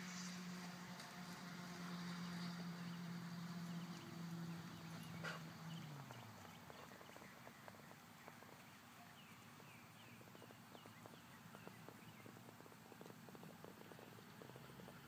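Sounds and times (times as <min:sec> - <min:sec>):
horse hoofbeats on sand: 0:03.9 - 0:15.0.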